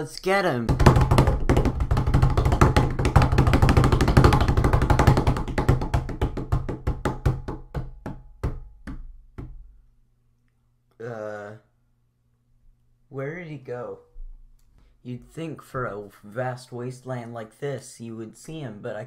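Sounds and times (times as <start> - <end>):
cartoon knocking hits: 0.7 - 9.7.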